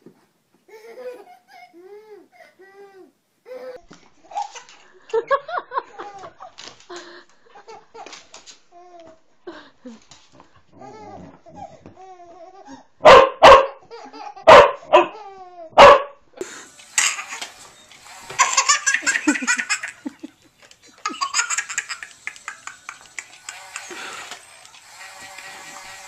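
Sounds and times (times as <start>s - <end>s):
dog barking loudly: 13.0s - 13.8s, 14.5s - 15.2s, 15.8s - 16.2s
baby laughing: 17.0s - 17.6s, 18.3s - 24.2s.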